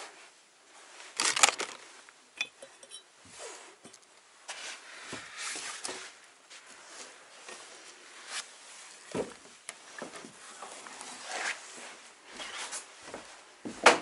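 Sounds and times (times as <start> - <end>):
crunching footsteps on littered floor: 1.0 - 2.2
glass clinking: 2.4 - 3.1.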